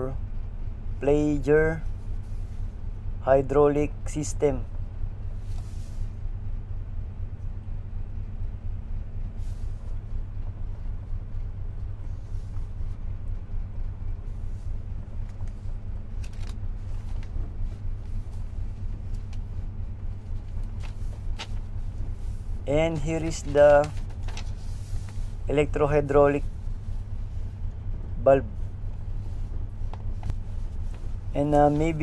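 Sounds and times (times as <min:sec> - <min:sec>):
ship machinery rumbling: 0:00.0 - 0:32.0
paper rustling: 0:15.4 - 0:18.4, 0:20.3 - 0:22.4, 0:23.0 - 0:25.3.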